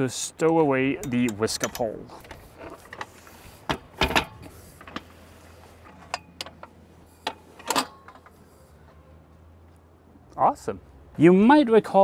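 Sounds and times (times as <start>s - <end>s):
metal pole clicks and clunks: 0.4s - 3.1s, 3.7s - 5.1s, 5.8s - 8.4s.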